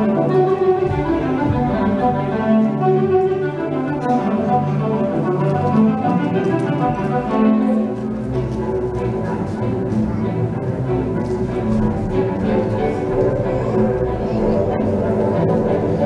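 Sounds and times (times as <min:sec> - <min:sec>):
orchestral strings melody: 0:00.0 - 0:16.0.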